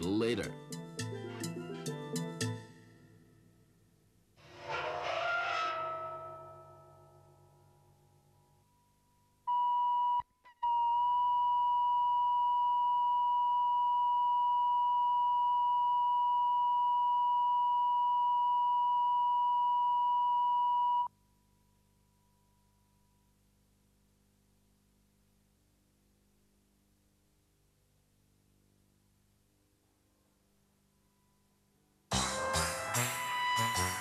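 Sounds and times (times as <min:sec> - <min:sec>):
steady test tone beep: 0:09.5 - 0:10.3, 0:11.0 - 0:21.1.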